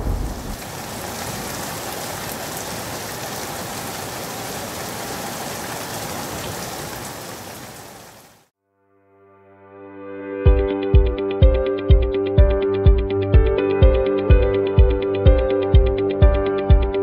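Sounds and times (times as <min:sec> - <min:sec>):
steady rain: 0:00.0 - 0:08.5.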